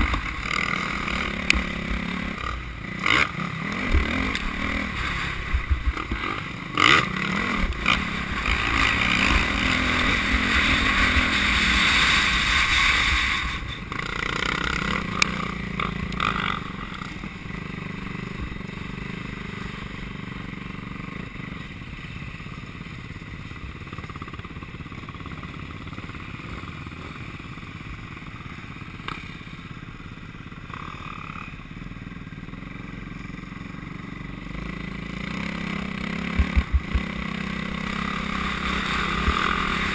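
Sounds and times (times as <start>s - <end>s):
motocross engine revving: 0.0s - 17.8s, 34.6s - 39.9s
sharp knocks: 36.3s - 37.0s.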